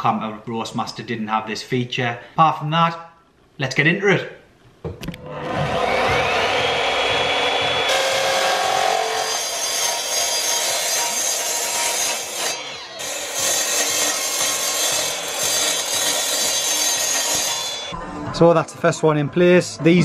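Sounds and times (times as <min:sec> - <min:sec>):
mitre saw cutting steel sheet: 0:05.3 - 0:18.0.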